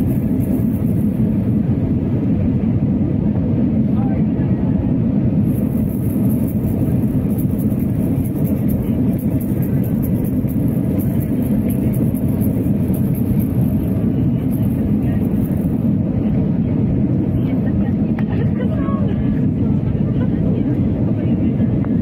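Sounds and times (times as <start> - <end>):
jet engine and airflow rumble: 0.0 - 22.0.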